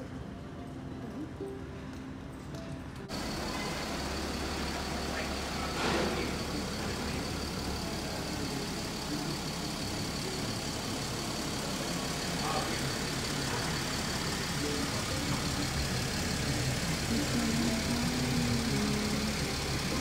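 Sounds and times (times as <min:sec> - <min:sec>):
low engine hum: 0:03.0 - 0:20.0.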